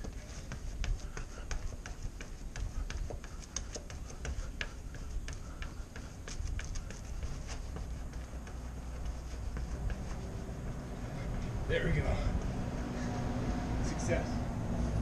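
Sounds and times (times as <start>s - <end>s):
unicycle clicks and taps: 0.0s - 10.1s.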